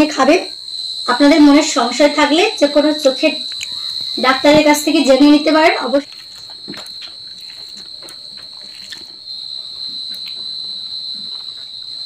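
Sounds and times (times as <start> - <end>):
cricket trilling: 0.0 - 12.0
eating by hand clicks and smacks: 3.5 - 4.7, 6.0 - 11.8.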